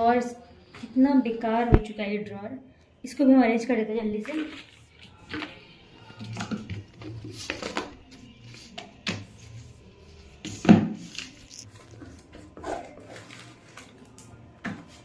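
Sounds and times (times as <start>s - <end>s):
papers and plastic rustling: 4.1s - 15.0s.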